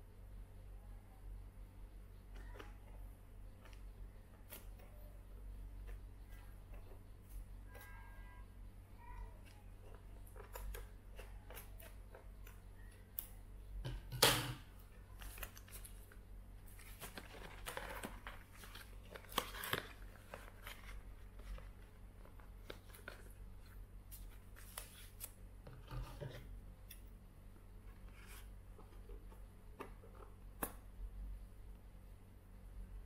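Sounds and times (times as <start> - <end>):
tape and cardboard rustling: 15.1 - 27.0.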